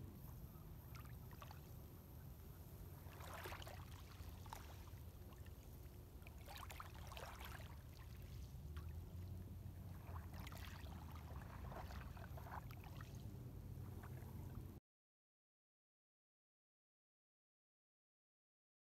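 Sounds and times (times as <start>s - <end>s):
faint water lapping: 0.1s - 14.8s
small splashes and trickles: 0.9s - 1.8s, 3.0s - 14.7s.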